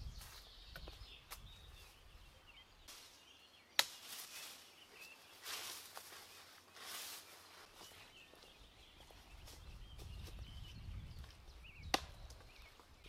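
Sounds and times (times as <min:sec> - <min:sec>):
faint birdsong: 0:00.0 - 0:13.0
twigs clicking: 0:03.8 - 0:04.6
footsteps on dry leaves: 0:03.9 - 0:10.5
sharp crack: 0:11.9 - 0:12.3.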